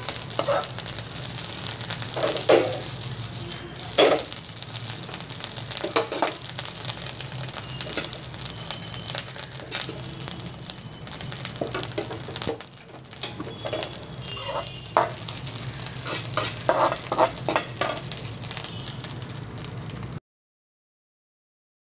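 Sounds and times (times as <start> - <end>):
metal spatula scraping a wok: 0.0 - 1.0, 2.0 - 3.0, 3.8 - 4.4, 5.8 - 6.6, 7.8 - 10.2, 11.1 - 18.7
rice sizzling: 0.0 - 20.2.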